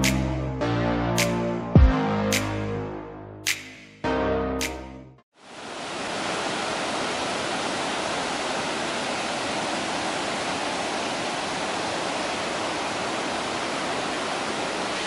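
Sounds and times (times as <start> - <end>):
waterfall rushing: 5.4 - 15.0.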